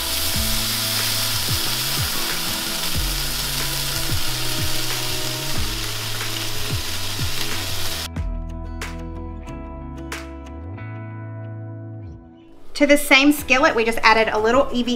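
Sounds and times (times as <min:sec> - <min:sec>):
meat patties sizzling in a skillet: 0:00.0 - 0:08.1
background music: 0:00.0 - 0:14.9.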